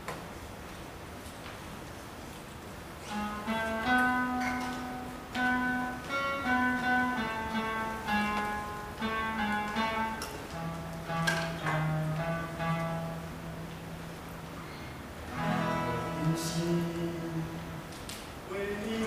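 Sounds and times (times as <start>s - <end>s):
acoustic guitar: 3.0s - 19.0s
church band playing worship song: 15.3s - 19.0s.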